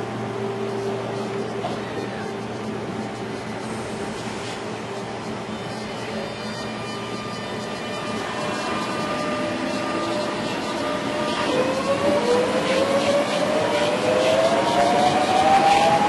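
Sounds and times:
electric train rumbling: 0.0s - 16.0s
train motor whine rising: 6.7s - 16.0s.

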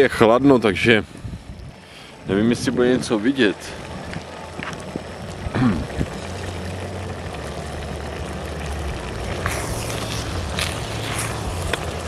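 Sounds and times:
camping stove burner hissing: 0.0s - 12.0s
pot simmering: 0.0s - 12.0s.

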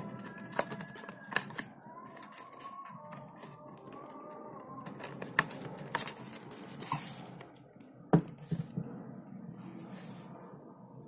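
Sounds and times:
knocks on wooden desk: 8.1s - 8.9s.

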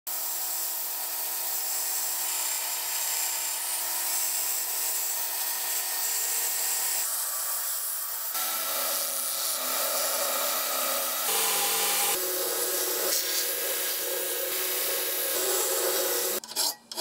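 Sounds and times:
belt grinder grinding steel: 0.1s - 17.0s
machine hum: 8.4s - 16.4s.

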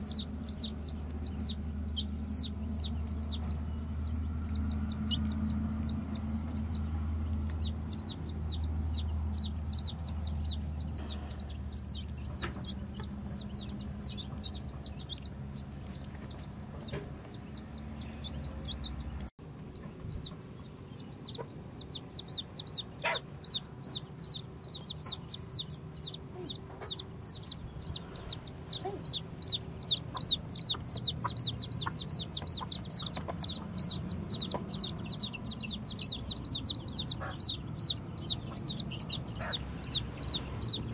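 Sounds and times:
chicks peeping: 0.0s - 40.9s
low hum: 0.0s - 40.9s.

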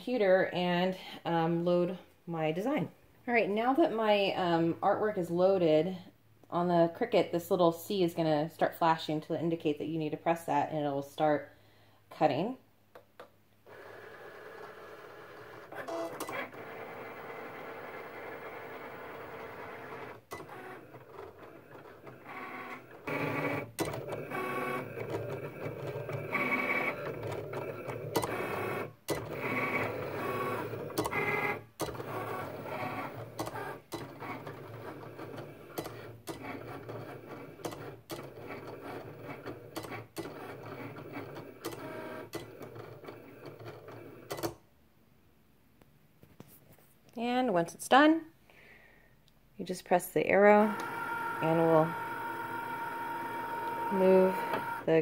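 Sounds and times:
cutting machine motors whirring: 13.7s - 44.0s, 50.6s - 55.0s.

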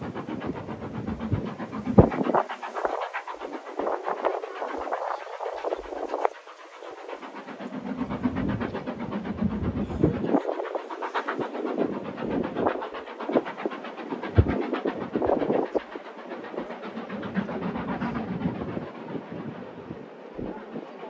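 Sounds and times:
steam train chuffing and clatter: 0.0s - 21.0s.

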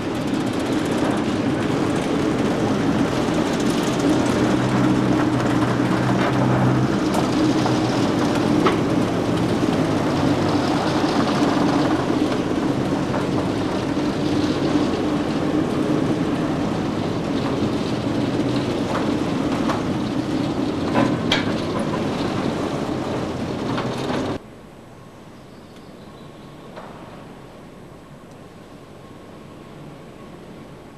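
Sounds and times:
diesel locomotive engine running: 0.0s - 24.4s.

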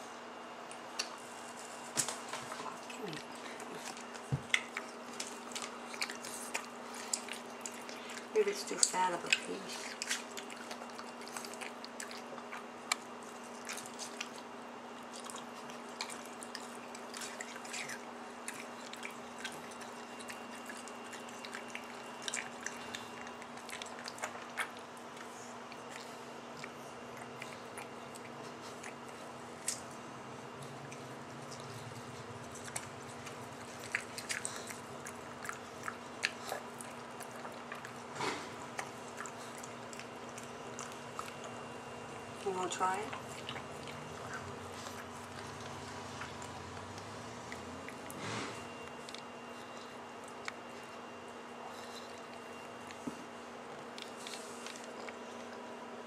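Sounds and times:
background hum: 0.0s - 56.0s.

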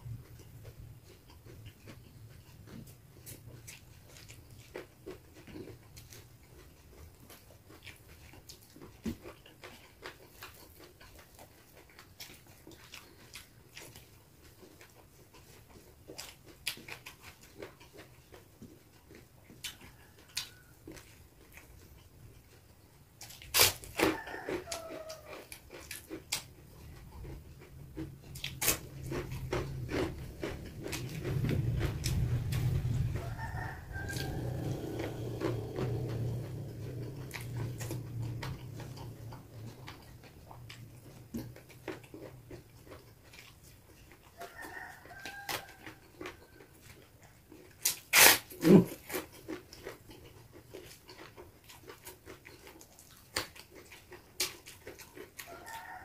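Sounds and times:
chewing and lip smacks: 0.0s - 56.0s
low hum: 27.0s - 41.8s
sharp crack: 47.8s - 48.6s.

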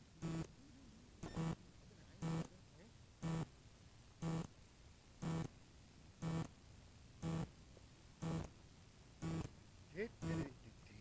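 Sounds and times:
short low electronic beeps: 1.2s - 1.6s, 3.2s - 3.5s, 4.2s - 4.5s, 5.2s - 5.5s, 6.2s - 6.5s, 7.2s - 7.5s, 8.2s - 8.5s, 9.2s - 9.5s, 10.2s - 10.5s.

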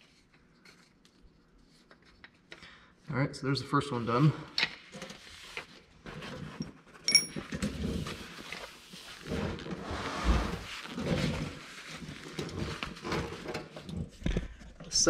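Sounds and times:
paper towels rustling: 7.9s - 13.8s.

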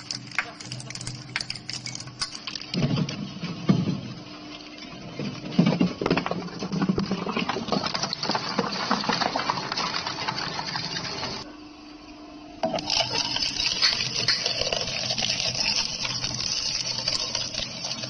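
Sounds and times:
shredder crunching plastic: 0.0s - 3.0s.

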